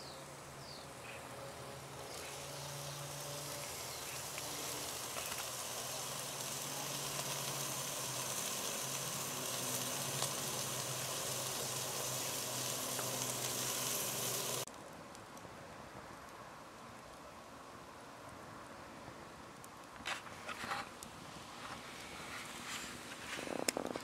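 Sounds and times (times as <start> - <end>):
meat sizzling on a grill: 1.8 - 14.7.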